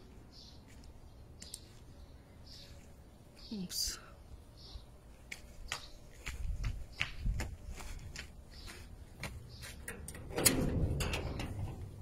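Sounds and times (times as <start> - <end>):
footsteps: 5.1 - 9.9.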